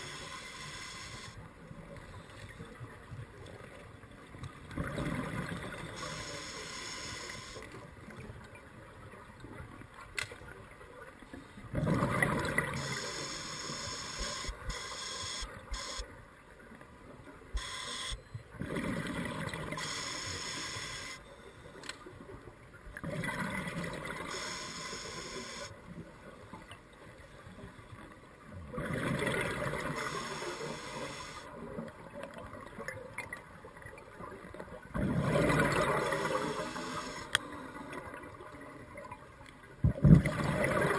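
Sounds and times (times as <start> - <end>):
diver breathing through regulator: 6.0 - 7.7, 12.8 - 16.0, 19.8 - 21.2
air bubbles gurgling: 39.9 - 40.9.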